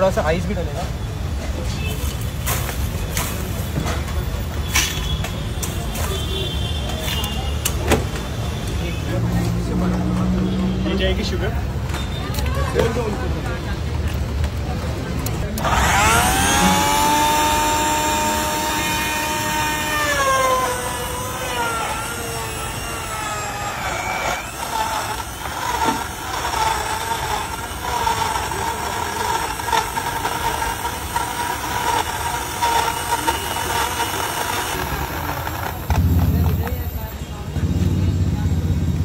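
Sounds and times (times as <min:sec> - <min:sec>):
blender motor whine: 0:15.4 - 0:37.1.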